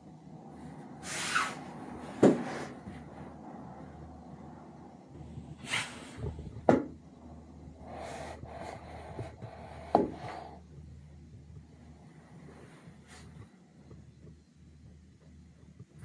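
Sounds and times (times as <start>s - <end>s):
low steady cabin hum: 0.0s - 16.0s
rustling whooshes: 0.5s - 6.6s.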